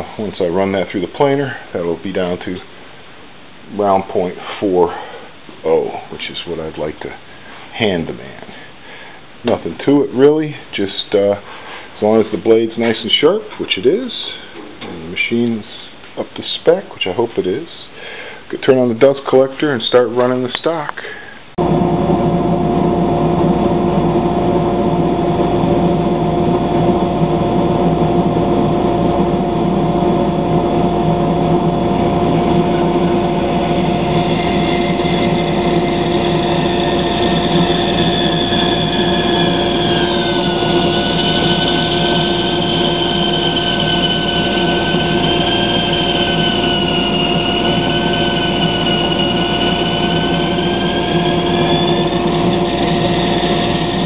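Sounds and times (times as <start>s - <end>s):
dust collector and bandsaw hum: 21.6s - 54.0s
bandsaw blade whine: 22.1s - 54.0s.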